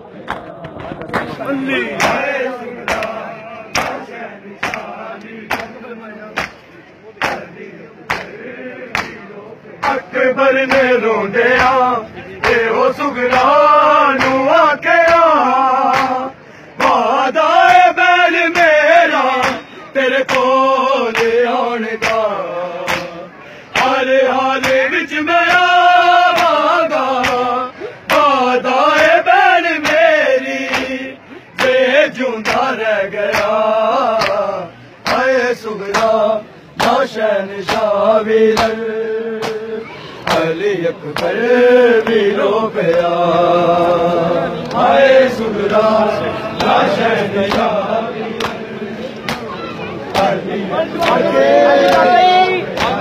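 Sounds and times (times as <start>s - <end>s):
men chanting together: 0.4s - 6.6s, 7.2s - 53.0s
hands slapping bare chests: 2.8s - 4.0s, 4.6s - 5.8s, 7.2s - 7.5s, 8.1s - 9.2s, 22.0s - 22.3s, 22.9s - 24.0s, 27.2s - 27.5s, 33.3s - 33.6s, 34.2s - 34.4s, 35.0s - 35.3s, 39.4s - 39.6s, 52.7s - 53.0s.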